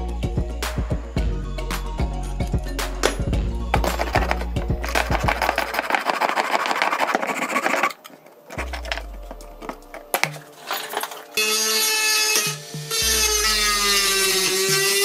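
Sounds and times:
saw cutting metal: 5.3 - 8.8, 10.5 - 15.0.

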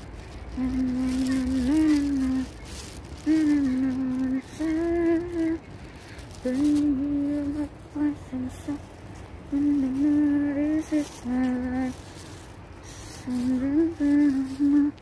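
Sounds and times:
person humming a slow tune: 0.5 - 5.6, 6.3 - 8.9, 12.9 - 15.0.

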